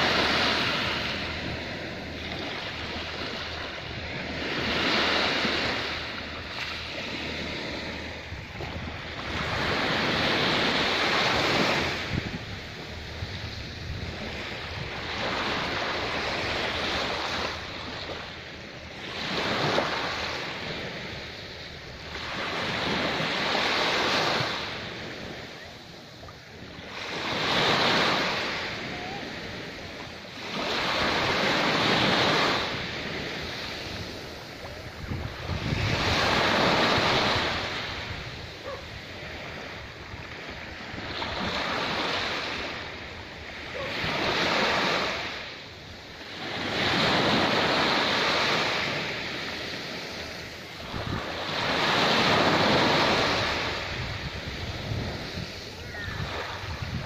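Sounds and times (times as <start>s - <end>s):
small waves breaking on beach: 0.0s - 57.0s.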